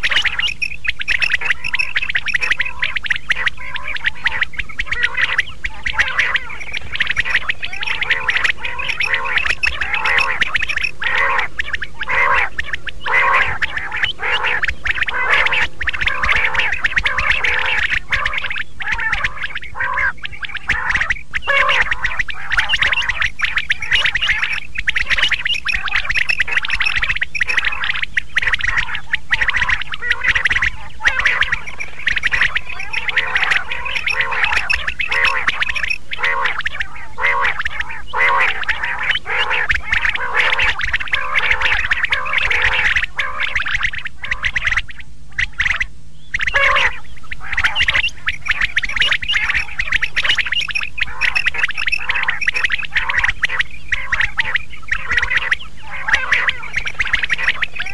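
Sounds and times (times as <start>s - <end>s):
low steady hum: 0.0s - 57.9s
quail calling: 0.0s - 57.9s.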